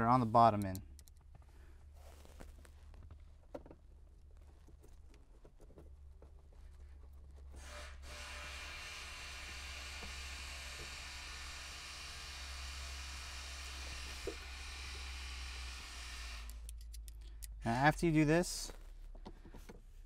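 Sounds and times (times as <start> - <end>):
screwdriver clicking and scraping: 0.5 - 1.4, 15.7 - 17.6.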